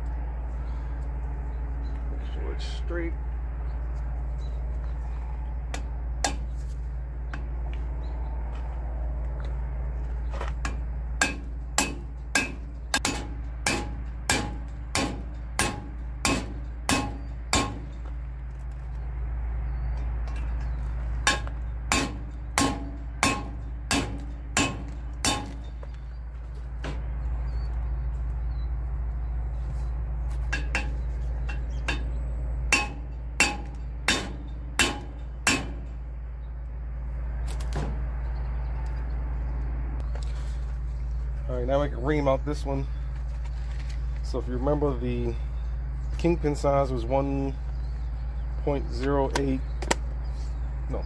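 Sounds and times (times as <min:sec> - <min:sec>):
hammer striking metal driver: 0:10.6 - 0:18.0, 0:21.2 - 0:25.6, 0:30.5 - 0:35.9.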